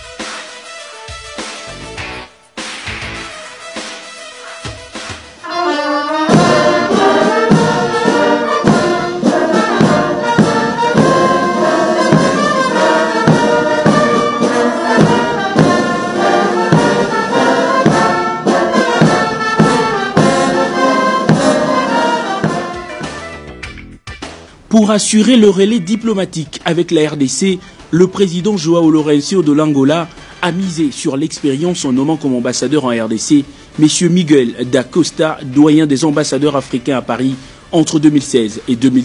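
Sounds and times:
bass drum beat: 0:01.1 - 0:03.4
brass band playing march: 0:03.0 - 0:23.4.

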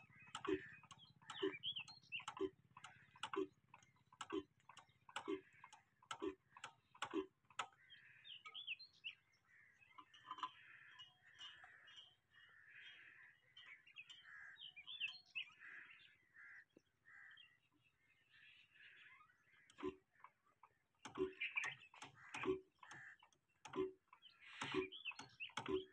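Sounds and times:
stationary engine clicking: 0:00.0 - 0:08.8, 0:19.6 - 0:25.9
faint birds chirping: 0:00.0 - 0:25.9.

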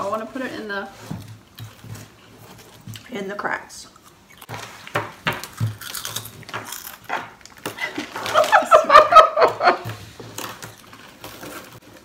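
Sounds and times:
crackers crunching on wooden table: 0:04.0 - 0:08.6, 0:10.2 - 0:12.0
people laughing: 0:07.9 - 0:09.9.

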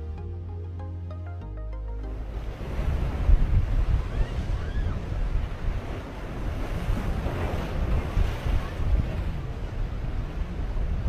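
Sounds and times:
waves splashing against boat hull: 0:02.4 - 0:11.0
wind buffeting microphone: 0:02.4 - 0:11.0.

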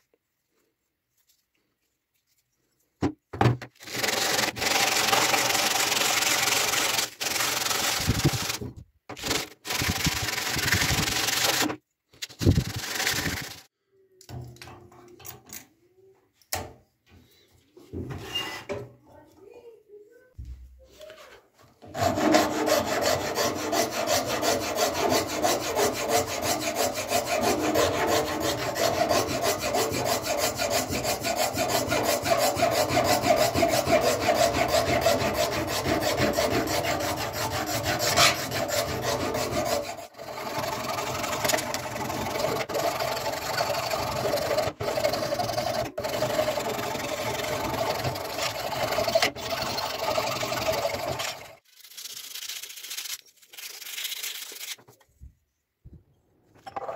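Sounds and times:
file rasping on wood: 0:21.8 - 0:51.5.

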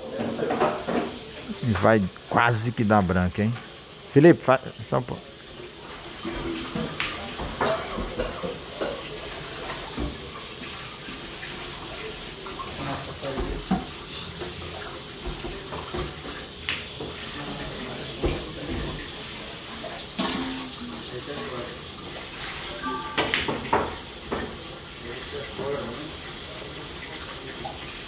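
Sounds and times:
faint voices: 0:01.4 - 0:03.6.

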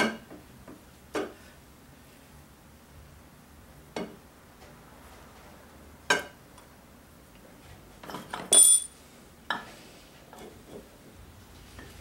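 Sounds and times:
metal engine parts clinking: 0:08.3 - 0:08.9
ringing metallic clank: 0:08.5 - 0:08.9.

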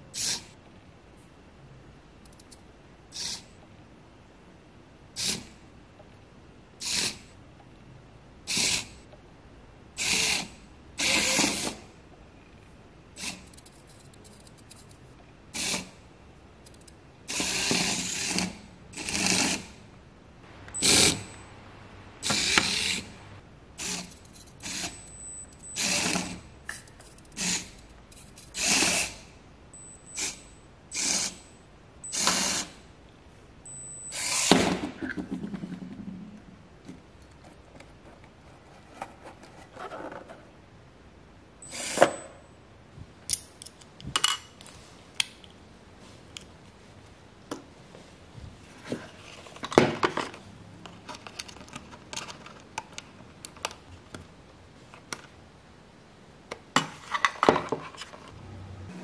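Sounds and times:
toy car motor whirring: 0:00.2 - 0:00.5, 0:03.1 - 0:03.5, 0:08.5 - 0:09.0, 0:10.0 - 0:11.8, 0:17.3 - 0:19.7, 0:22.2 - 0:23.1, 0:23.8 - 0:25.0, 0:25.7 - 0:26.4, 0:28.5 - 0:29.2, 0:30.2 - 0:31.4, 0:32.1 - 0:32.7.

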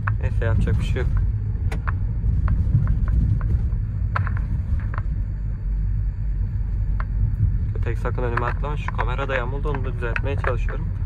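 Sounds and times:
van engine and road noise: 0:00.0 - 0:11.0
light clicks and knocks: 0:07.8 - 0:11.0.

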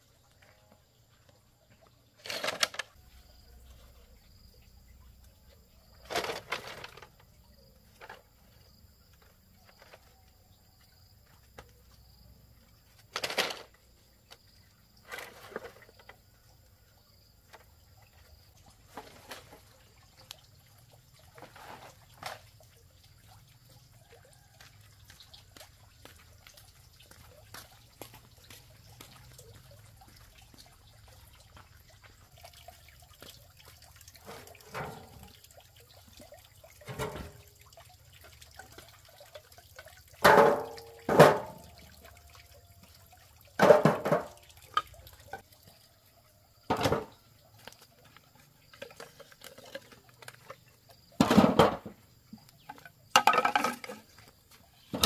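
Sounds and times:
liquid splashing and dripping: 0:15.8 - 0:55.0.

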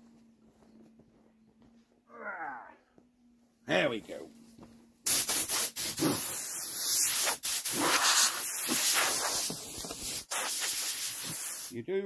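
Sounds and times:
air blow gun hissing: 0:05.1 - 0:11.8.

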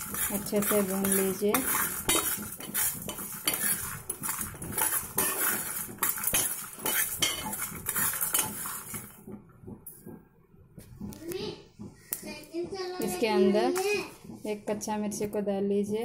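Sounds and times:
spoon scraping seeds in metal pan: 0:00.0 - 0:09.2.

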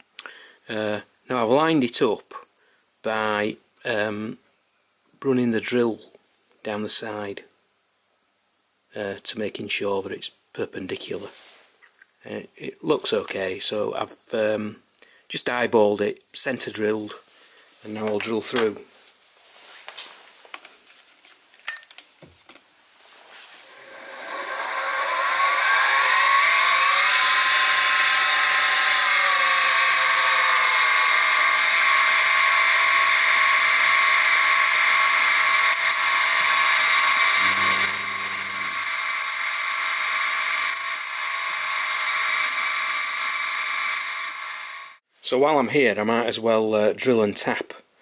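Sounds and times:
drill squealing in steel: 0:23.4 - 0:45.0
mill spindle motor whine: 0:23.5 - 0:45.0.

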